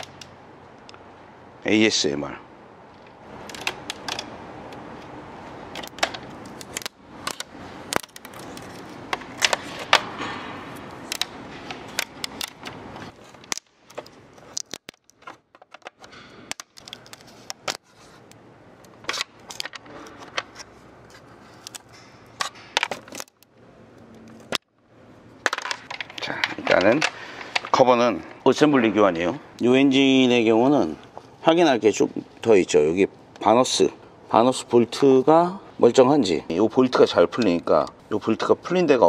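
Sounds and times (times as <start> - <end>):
rubber gasket crackling and snapping: 5.7 - 10.2, 10.8 - 20.5.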